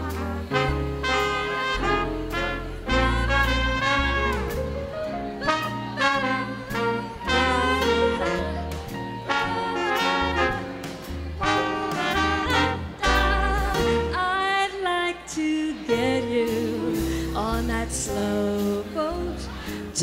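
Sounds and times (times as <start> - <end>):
saxophones and brass: 0.0 - 14.5
upright bass: 0.0 - 15.1, 15.8 - 20.0
drums: 0.0 - 20.0
piano: 0.0 - 20.0.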